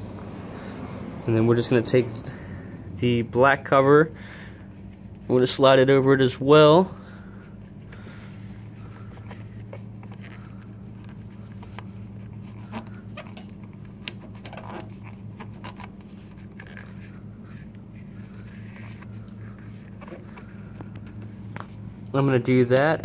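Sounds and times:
low hum: 0.0 - 22.5
rubber rubbing and scraping: 8.6 - 21.9.

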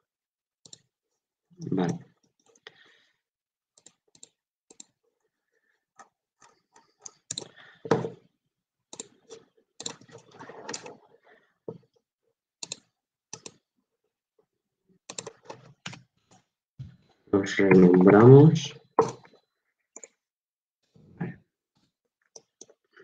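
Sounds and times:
keyboard and mouse clicks: 0.6 - 0.9, 3.8 - 5.0, 6.0 - 8.1, 8.9 - 11.0, 12.6 - 13.6, 15.0 - 16.5, 19.0 - 19.4, 20.0 - 20.2, 22.2 - 22.9.

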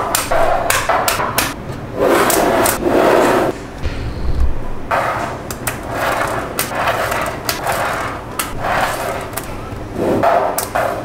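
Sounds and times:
balls rolling and rubbing: 0.0 - 3.6, 4.9 - 11.0.

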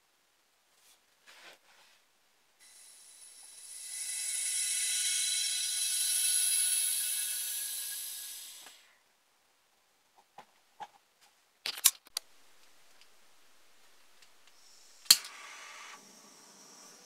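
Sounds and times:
torch flame hissing: 2.6 - 8.8.

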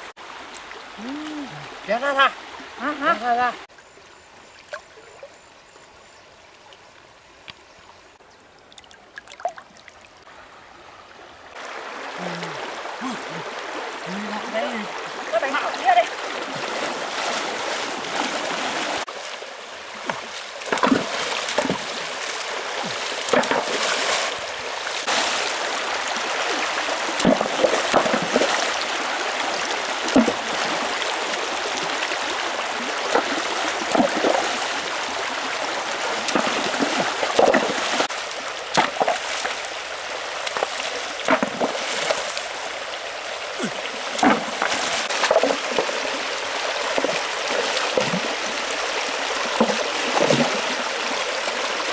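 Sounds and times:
stream running over rocks: 0.0 - 51.9
people wading and splashing: 11.6 - 51.9.

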